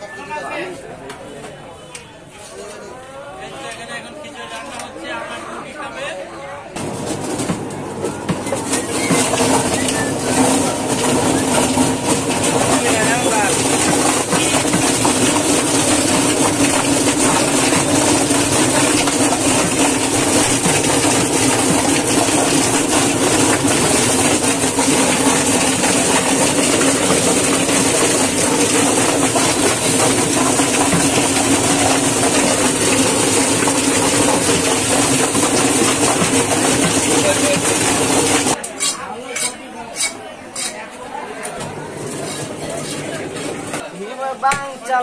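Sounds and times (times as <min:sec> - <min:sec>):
chicken plucker mechanical rattle: 0:06.8 - 0:38.6.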